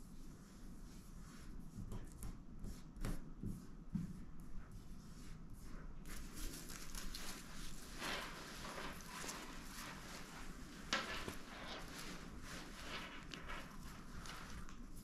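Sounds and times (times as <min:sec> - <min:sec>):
hands rubbing mesh fabric: 0:04.7 - 0:15.0
fabric rustling: 0:05.0 - 0:15.0.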